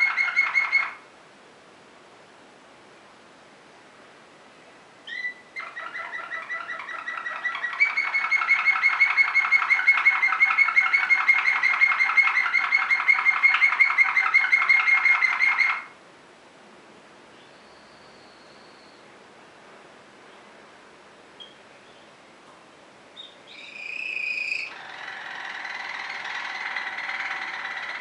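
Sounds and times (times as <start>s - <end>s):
canary singing: 0.0s - 1.0s, 5.0s - 16.0s, 17.4s - 19.1s, 21.4s - 22.1s, 23.2s - 28.0s.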